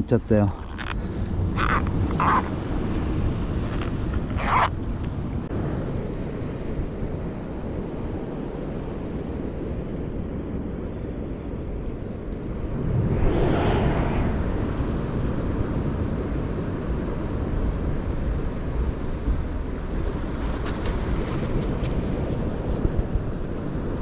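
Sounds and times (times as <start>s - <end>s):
wind rumble on microphone: 0.0s - 24.0s
wash of noise: 12.3s - 15.9s.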